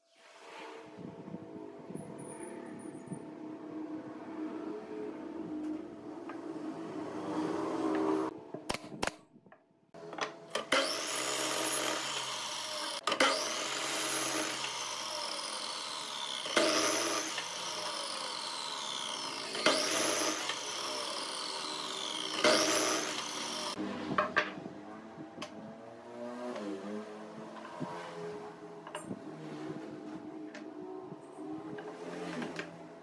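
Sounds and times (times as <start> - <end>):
miter saw cutting wood: 6.8 - 8.3, 10.5 - 24.0
saw blade whine coasting down: 10.7 - 23.9.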